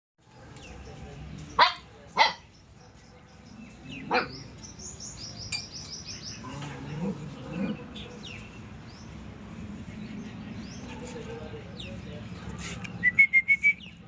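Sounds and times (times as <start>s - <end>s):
puppy barking: 1.6s - 3.4s, 4.1s - 4.4s
bird chirping: 2.4s - 9.2s.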